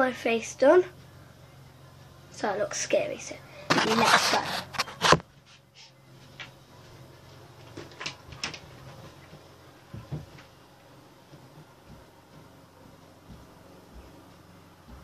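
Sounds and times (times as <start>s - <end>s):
knocks clicks and rustles: 7.6s - 10.5s
dull thuds: 8.9s - 10.5s.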